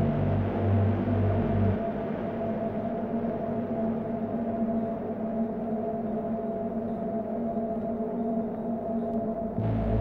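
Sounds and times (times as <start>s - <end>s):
eerie droning ambient music: 0.0s - 10.0s.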